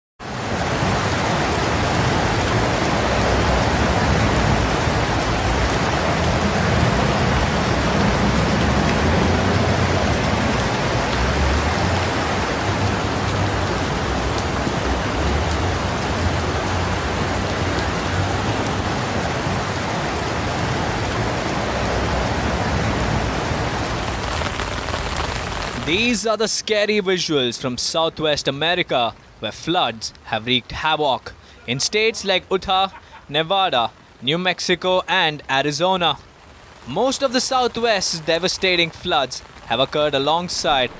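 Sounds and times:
floodwater rushing through streets: 0:00.2 - 0:40.9.

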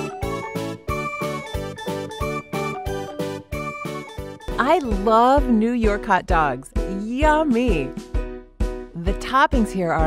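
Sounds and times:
bouncy children's game music: 0:00.0 - 0:08.0.

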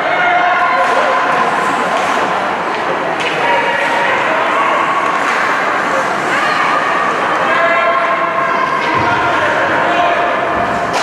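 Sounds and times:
spectators' voices: 0:00.0 - 0:11.0.

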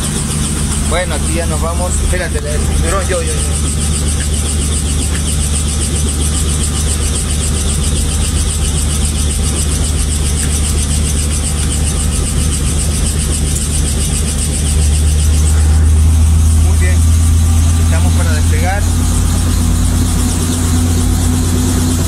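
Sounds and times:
helicopter engine and rotor: 0:00.0 - 0:22.0.

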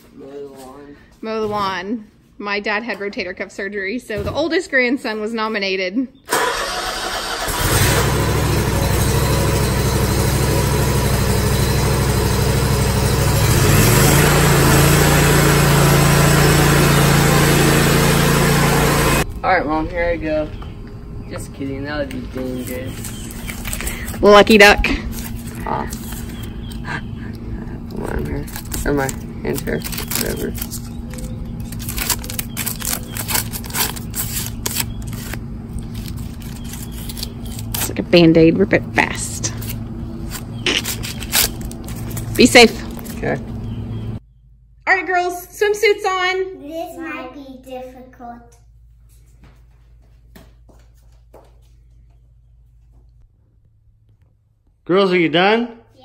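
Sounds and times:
mower engine running: 0:06.3 - 0:19.3, 0:22.6 - 0:44.2
tape peeling and ripping: 0:22.9 - 0:24.2, 0:24.9 - 0:26.8, 0:28.3 - 0:38.0, 0:39.4 - 0:43.2.

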